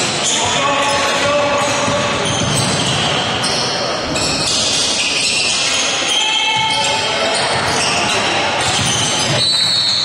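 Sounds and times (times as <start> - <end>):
basketball bouncing on court: 1.1 - 3.2, 8.6 - 10.0.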